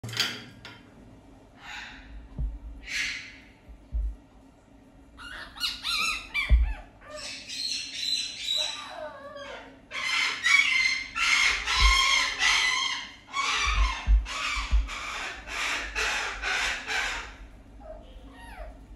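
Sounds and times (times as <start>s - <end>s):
dull low bumps: 2.1s - 2.9s, 3.6s - 4.2s, 6.1s - 6.8s, 11.5s - 12.4s, 13.5s - 16.5s
fox squawking calls: 5.2s - 7.8s, 8.4s - 18.8s.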